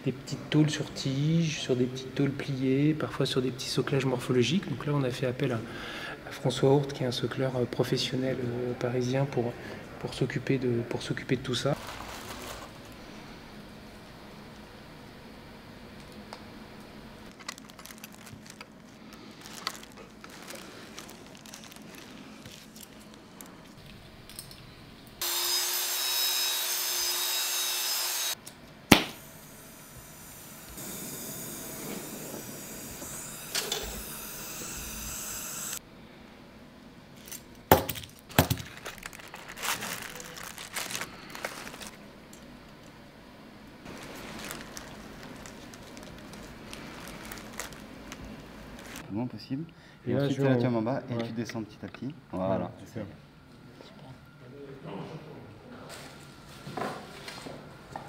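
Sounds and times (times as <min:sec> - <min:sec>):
loud machine noise: 0:25.2 - 0:28.4, 0:29.2 - 0:35.8
sharp snap: 0:28.9 - 0:29.2.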